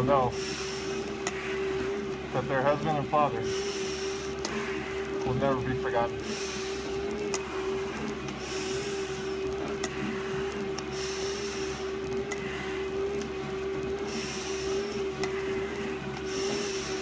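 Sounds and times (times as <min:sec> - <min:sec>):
steady machine hum: 0:00.0 - 0:17.0
hard breathing through a mask: 0:03.4 - 0:05.1, 0:14.0 - 0:17.0.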